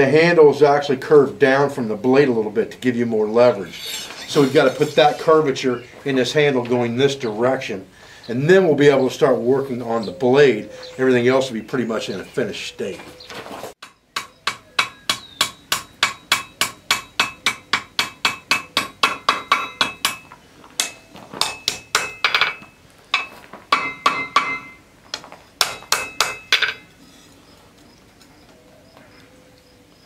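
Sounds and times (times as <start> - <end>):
hammer striking steel on anvil: 13.8 - 24.8, 25.6 - 26.9
anvil ringing: 14.2 - 24.8.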